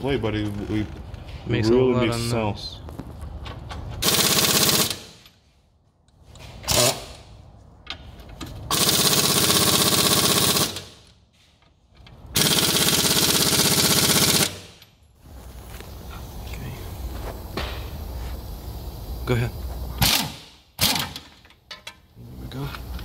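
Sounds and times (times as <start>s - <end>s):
pneumatic impact wrench hammering: 4.0s - 5.3s, 6.5s - 7.3s, 8.4s - 11.1s, 12.3s - 14.9s, 19.9s - 22.0s.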